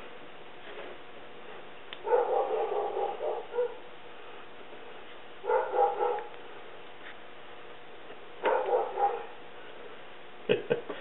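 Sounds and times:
dog barking: 2.0 - 3.9, 5.4 - 6.4, 8.4 - 9.4.

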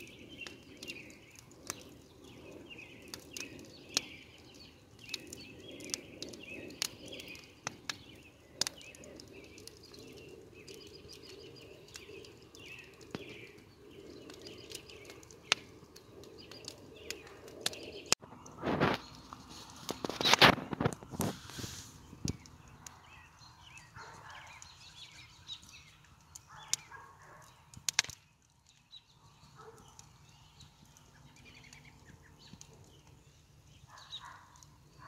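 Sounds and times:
small birds chirping: 0.0 - 35.0
sharp clicks: 27.7 - 28.2.

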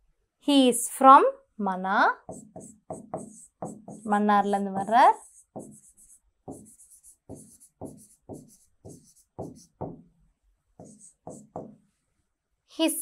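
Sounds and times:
stylus tapping and scratching on screen: 2.2 - 10.1, 10.8 - 12.0.

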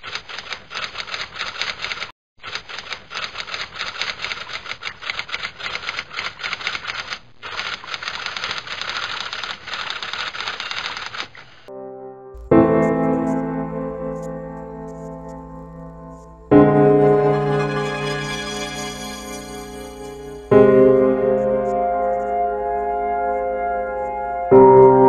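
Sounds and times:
typewriter keys clacking: 0.0 - 11.4.

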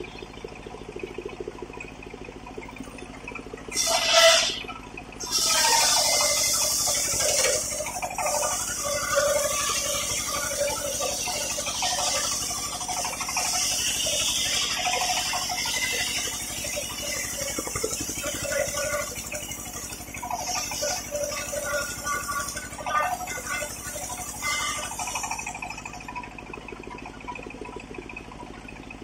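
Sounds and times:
low hum: 0.0 - 29.0
circular saw blade cutting wood: 3.7 - 26.1.

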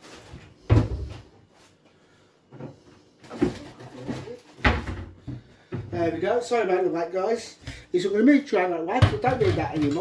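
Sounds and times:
cupboard opening and closing: 0.0 - 1.3, 2.6 - 6.2
kitchen cupboard knocks: 4.6 - 5.9, 9.0 - 10.0.

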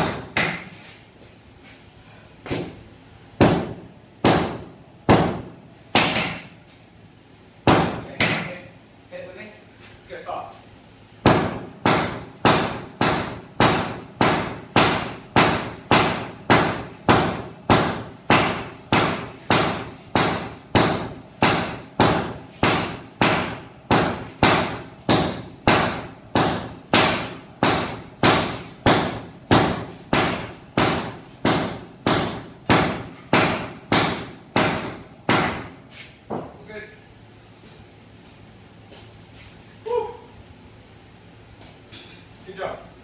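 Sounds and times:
hammers striking steel on anvil: 0.0 - 0.7, 3.4 - 6.5, 7.6 - 8.6, 11.2 - 35.8.

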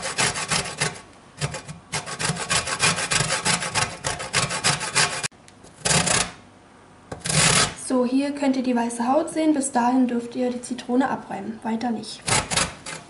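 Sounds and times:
lemon rasping on metal grater: 0.0 - 6.4, 7.1 - 7.8, 12.2 - 13.0.

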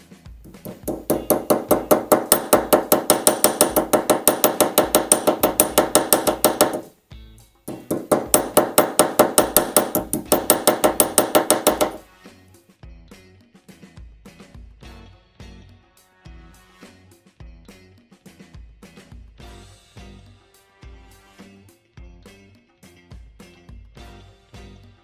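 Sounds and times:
hammer tapping on metal: 0.5 - 6.9, 7.7 - 12.0.

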